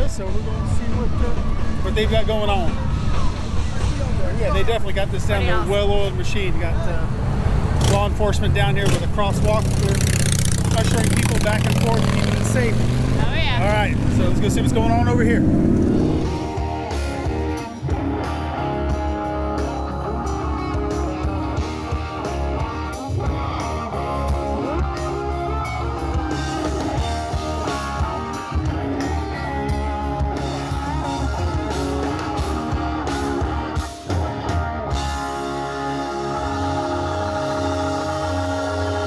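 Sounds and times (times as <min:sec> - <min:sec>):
rock band playing live: 0:15.8 - 0:39.0.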